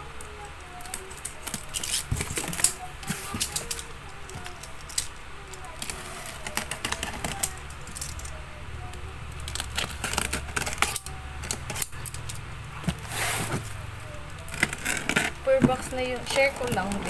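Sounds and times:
scratchy cardboard rustle: 1.0s - 4.8s, 12.8s - 17.0s.

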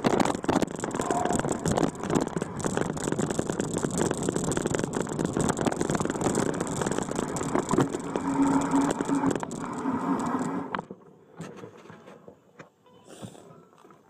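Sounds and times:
low held tone: 0.0s - 10.9s, 12.8s - 13.9s
vehicle engine running: 0.0s - 10.9s
vehicle bumping and rattling: 0.0s - 12.2s.

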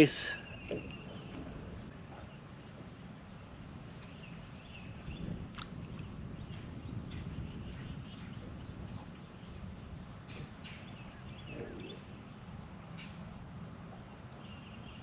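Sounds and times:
faint bird chirps: 6.0s - 13.3s.

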